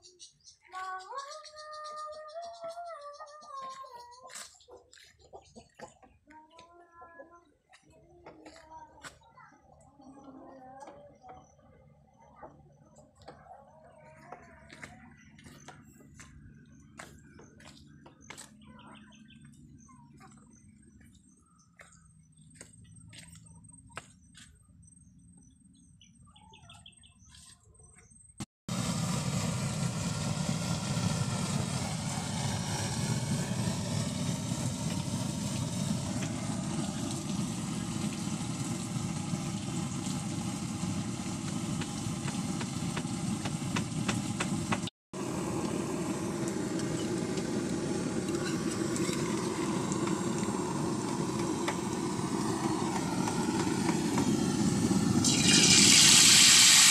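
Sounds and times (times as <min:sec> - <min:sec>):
birds chirping: 0:00.0 - 0:28.4
pressurised burner roaring: 0:28.7 - 0:56.9.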